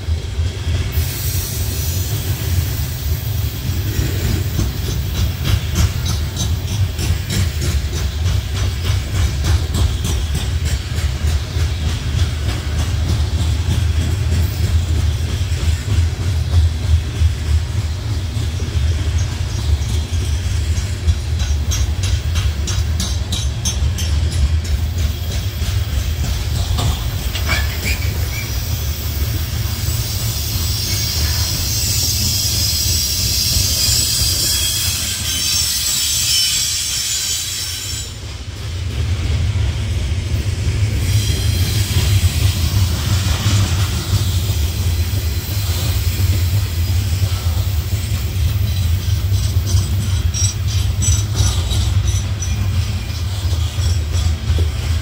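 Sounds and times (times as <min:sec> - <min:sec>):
freight train rumbling past: 0:00.0 - 0:55.0
wheels clicking over rail joints: 0:03.8 - 0:28.7, 0:41.9 - 0:55.0
high-pitched wheel squeal: 0:27.5 - 0:28.6, 0:30.4 - 0:38.2.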